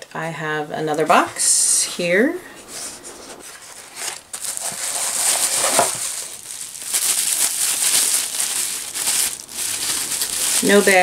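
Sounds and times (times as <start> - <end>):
bubble wrap crinkling: 3.4 - 11.0.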